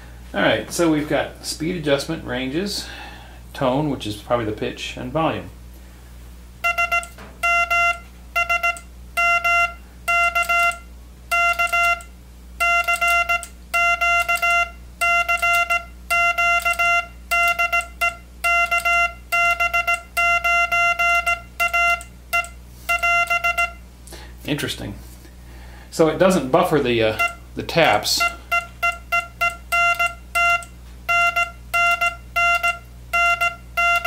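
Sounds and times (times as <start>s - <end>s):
morse code buzzy tone: 6.6s - 23.9s, 27.1s - 34.0s.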